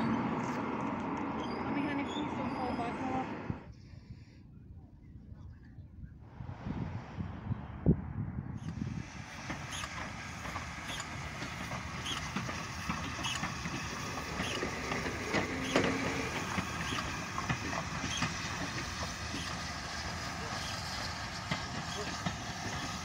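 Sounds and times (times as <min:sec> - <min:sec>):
steam train rumbling past: 0:00.0 - 0:03.7, 0:06.2 - 0:23.0
regular rail clicks: 0:00.1 - 0:02.4, 0:08.6 - 0:23.0.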